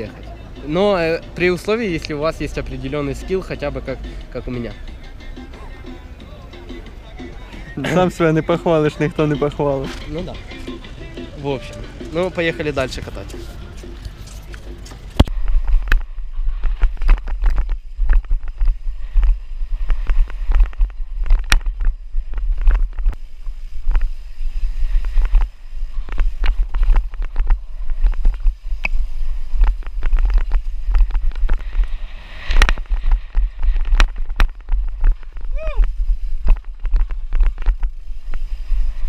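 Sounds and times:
bike rattling over bumps: 15.0 - 39.0
wind buffeting on microphone: 15.1 - 39.0.

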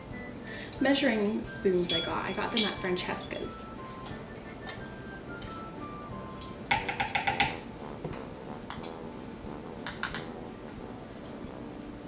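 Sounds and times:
metal measuring spoons clinking: 0.5 - 4.2, 6.4 - 7.6.

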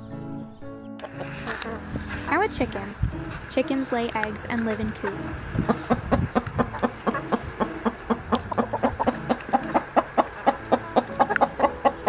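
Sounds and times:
hens clucking: 1.0 - 2.1, 4.2 - 12.0.

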